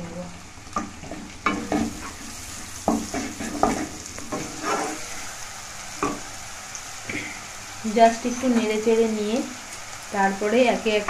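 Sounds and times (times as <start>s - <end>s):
food sizzling in oil: 0.0s - 11.0s
spatula scraping a pan: 1.0s - 5.4s.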